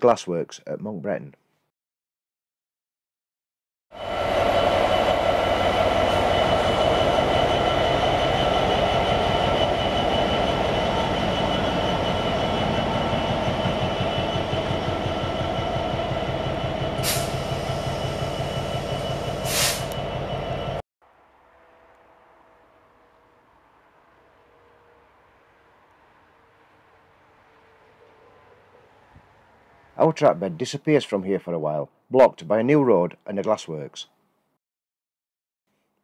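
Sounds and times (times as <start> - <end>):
diesel locomotive engine: 3.9 - 30.6
train wheels rolling on rails: 4.0 - 20.8.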